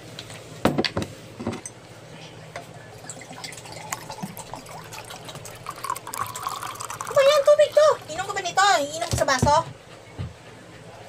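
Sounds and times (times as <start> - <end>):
water pouring into glass: 2.9 - 8.2.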